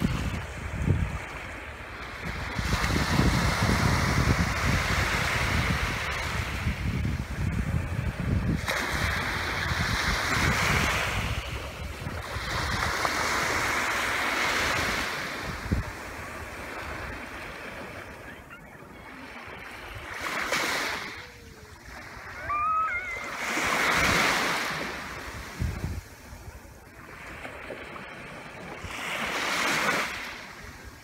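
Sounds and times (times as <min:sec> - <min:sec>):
waves washing onto sand: 0:00.0 - 0:31.0
short high calls: 0:22.3 - 0:23.4.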